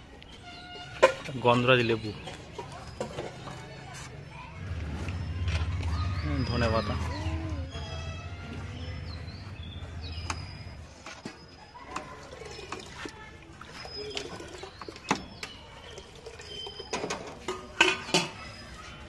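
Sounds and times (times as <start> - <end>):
high bird chirps: 4.2 - 13.0, 13.7 - 17.1.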